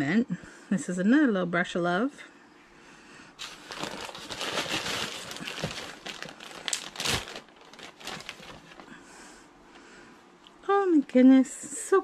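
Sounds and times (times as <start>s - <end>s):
packaging crinkling: 3.4s - 9.0s.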